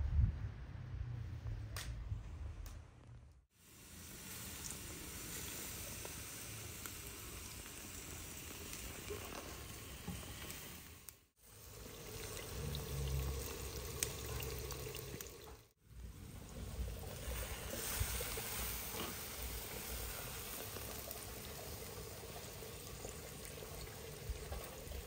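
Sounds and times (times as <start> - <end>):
low rumble: 0.0 - 3.4
food sizzling: 3.5 - 25.0.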